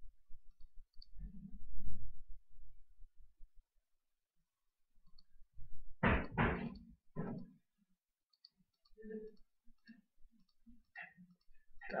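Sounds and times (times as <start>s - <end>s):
computer mouse clicking: 8.3s - 12.0s.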